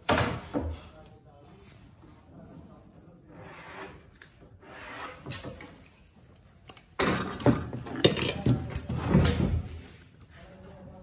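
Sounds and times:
wooden parts rubbed by hand: 1.5 - 6.2.

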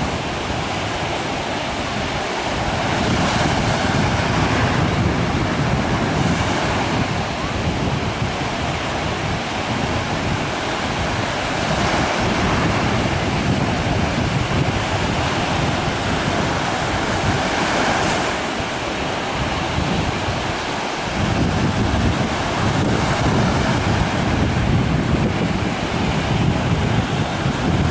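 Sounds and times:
sea surf breaking on shore: 0.0 - 27.9
wind rumbling on microphone: 0.0 - 27.9.

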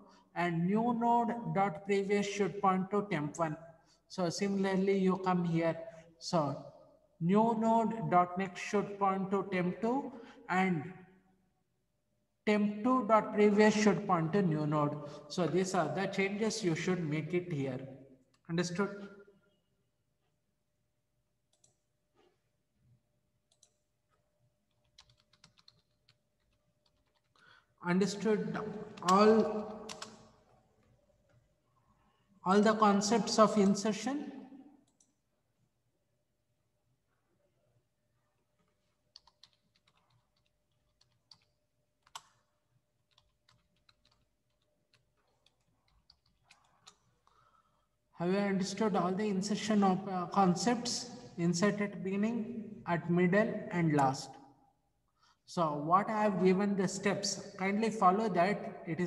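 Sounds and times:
computer keyboard clicks: 24.7 - 27.5, 29.0 - 30.3, 39.1 - 42.4, 43.1 - 47.4.

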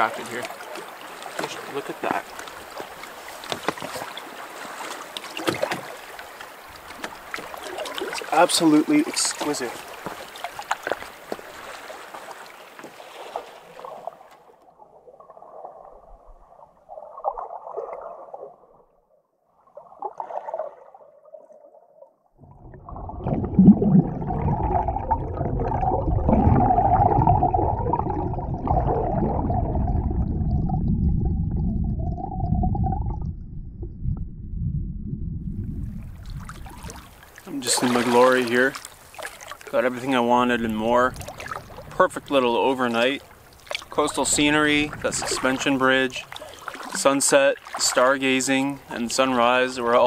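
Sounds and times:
muffled underwater water rumbling: 13.8 - 19.0, 22.3 - 50.0.

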